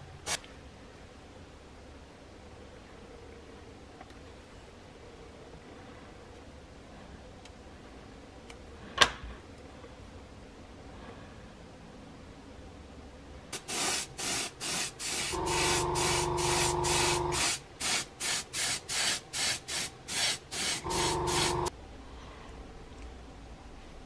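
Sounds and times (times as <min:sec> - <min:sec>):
airbrush spraying: 0:13.6 - 0:21.7
steady motor hum: 0:15.4 - 0:17.4, 0:20.8 - 0:21.7.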